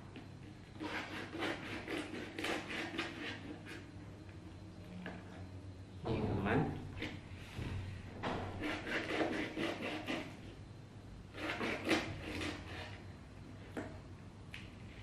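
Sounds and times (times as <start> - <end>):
knife scraping through eel: 0.8 - 3.9, 8.6 - 10.4, 11.3 - 13.0.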